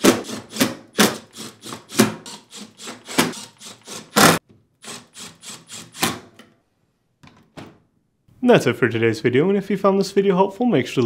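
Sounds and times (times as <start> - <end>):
drill driving screws into metal: 0.0 - 6.3.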